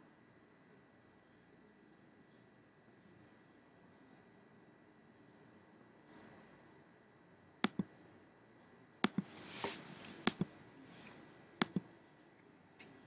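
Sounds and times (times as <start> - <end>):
computer mouse button clicks: 7.6 - 7.9, 9.0 - 9.3, 10.2 - 10.5, 11.6 - 11.9
soft rustle: 9.2 - 11.3.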